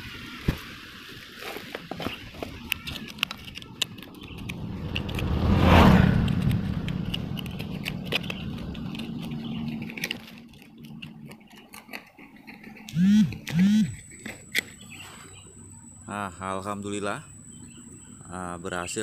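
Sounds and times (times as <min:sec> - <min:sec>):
knife scraping stony soil: 0:01.2 - 0:15.1
vehicle passing: 0:03.9 - 0:10.0.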